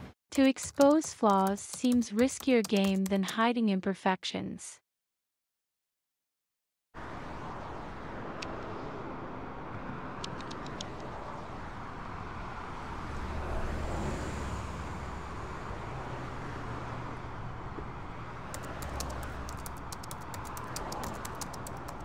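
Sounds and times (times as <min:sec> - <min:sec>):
tally counter clicking: 0:00.4 - 0:03.4, 0:18.5 - 0:22.0
road traffic: 0:07.0 - 0:22.0
vehicle passing: 0:07.2 - 0:22.0.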